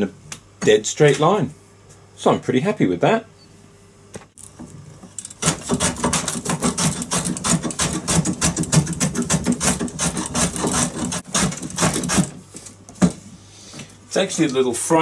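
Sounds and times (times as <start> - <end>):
hand plane shaving wood: 5.4 - 12.4.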